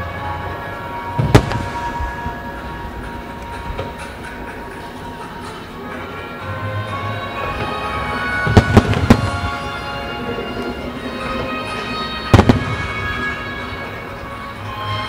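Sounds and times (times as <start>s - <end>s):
music playing: 0.0s - 15.0s
fireworks bursting with bangs: 0.6s - 5.5s, 7.2s - 15.0s.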